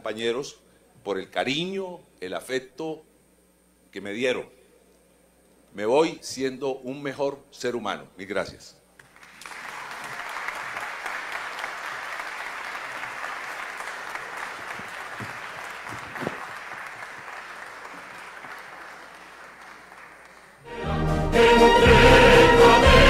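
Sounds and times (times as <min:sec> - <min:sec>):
crowd applauding: 0:09.0 - 0:20.7.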